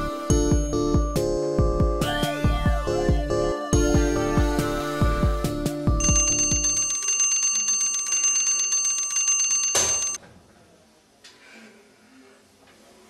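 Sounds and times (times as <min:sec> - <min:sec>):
alarm clock bell ringing: 0:06.0 - 0:10.2.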